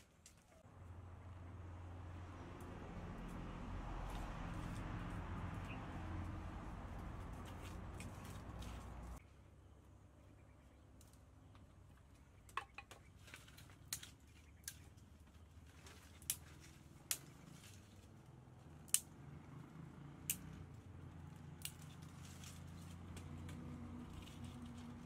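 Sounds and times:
dry twigs snapping: 4.1 - 9.2, 12.5 - 15.1, 15.7 - 18.2, 18.8 - 19.1, 20.2 - 20.6, 21.3 - 25.0.

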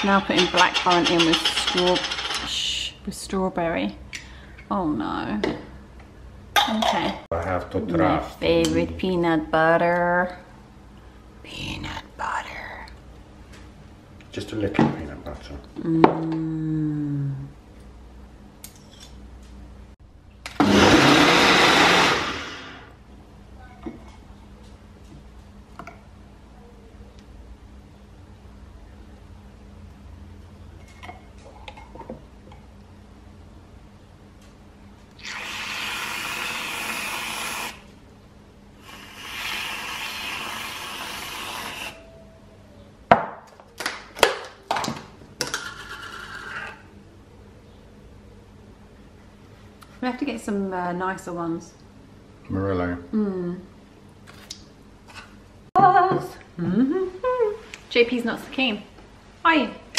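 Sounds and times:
blender running: 20.5 - 23.0, 35.2 - 37.8, 38.8 - 42.0
aerosol whipped cream hissing: 35.2 - 37.8, 38.8 - 42.0.

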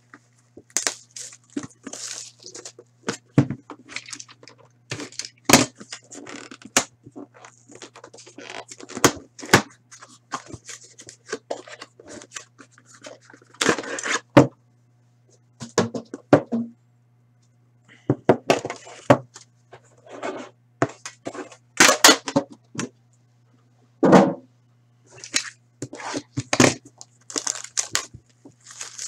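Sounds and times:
plastic wrap crinkling and tearing: 0.7 - 3.2, 3.8 - 6.7, 26.2 - 29.0.

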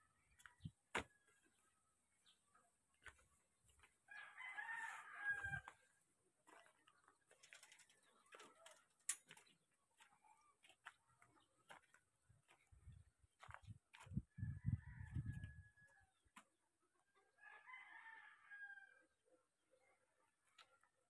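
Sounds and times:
rooster crowing: 4.1 - 5.8, 14.4 - 16.1, 17.4 - 19.0.

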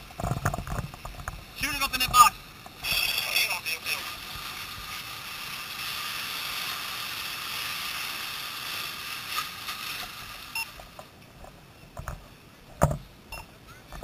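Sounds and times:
fire hose spraying water: 1.4 - 11.1.

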